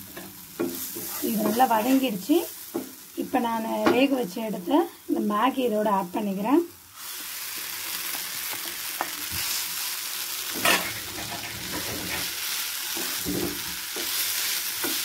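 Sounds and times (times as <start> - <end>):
noodles sizzling in oil: 0.0 - 15.0
wooden spatula scraping a pan: 0.9 - 2.2, 10.6 - 15.0.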